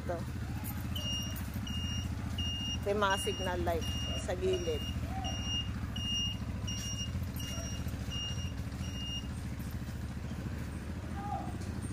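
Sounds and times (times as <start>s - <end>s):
atv engine idling: 0.0s - 11.9s
turn signal beeper beeps: 0.8s - 9.5s.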